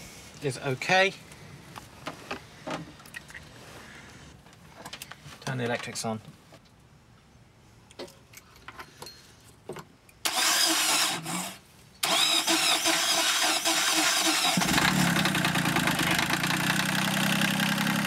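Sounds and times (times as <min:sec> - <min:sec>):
diesel engine starter cranking: 0:10.2 - 0:16.9
diesel engine idling: 0:14.6 - 0:18.0.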